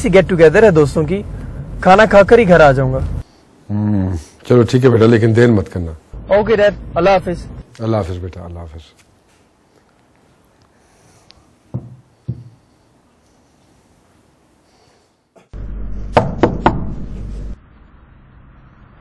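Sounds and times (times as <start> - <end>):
knocks on a door: 11.7 - 12.6.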